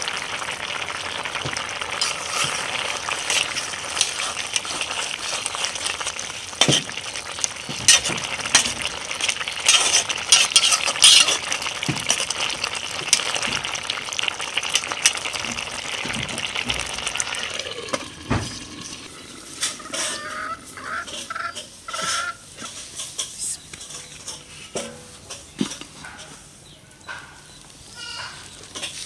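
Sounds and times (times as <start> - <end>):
curry boiling in a pot: 0.0 - 23.2.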